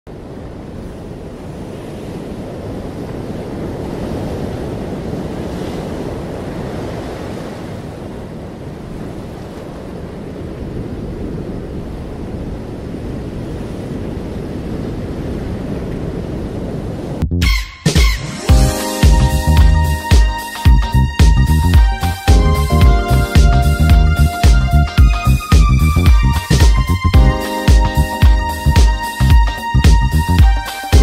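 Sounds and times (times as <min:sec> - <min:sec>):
surf over open water: 0:00.1 - 0:17.2, 0:18.0 - 0:31.0
wind: 0:00.1 - 0:17.6.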